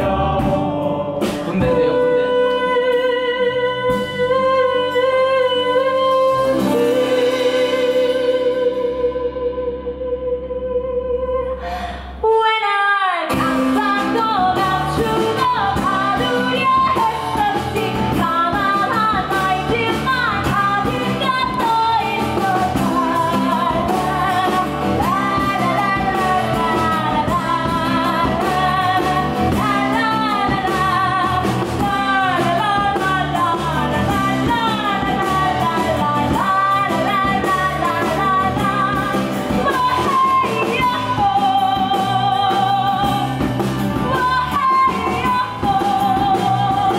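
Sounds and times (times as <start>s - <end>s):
woman singing: 0.0s - 46.9s
keyboard and guitar: 13.3s - 46.9s.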